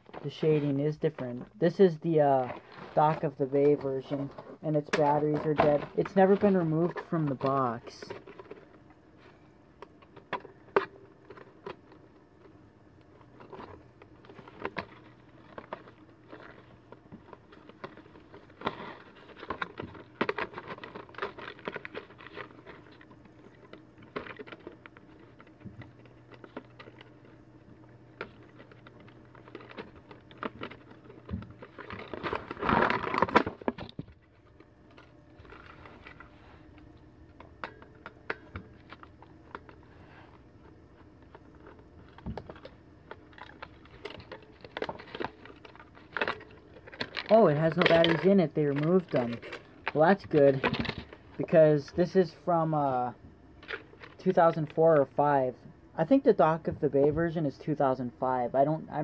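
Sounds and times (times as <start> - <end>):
rustling handling noise: 0.0 - 55.2
faint low hum: 0.0 - 59.0
cardboard packaging handling: 13.1 - 36.8, 37.5 - 51.3.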